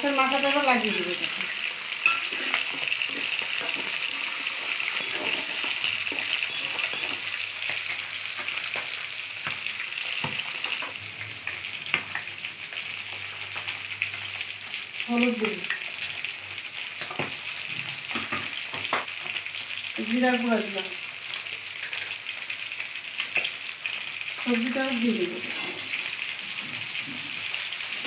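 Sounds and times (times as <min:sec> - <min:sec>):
food sizzling in wok: 0:00.0 - 0:28.0
metal spatula knocking pan: 0:02.0 - 0:07.4.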